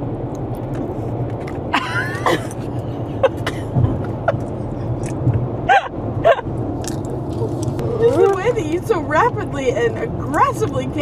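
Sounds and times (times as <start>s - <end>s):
car road and engine noise: 0.0s - 11.0s.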